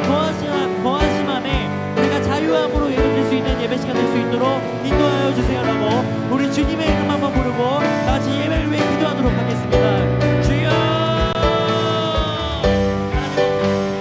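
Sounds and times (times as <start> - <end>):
bass guitar: 0.0 - 14.0
drum kit: 0.0 - 14.0
guitar: 0.0 - 14.0
piano: 0.0 - 14.0
people singing: 10.6 - 13.4.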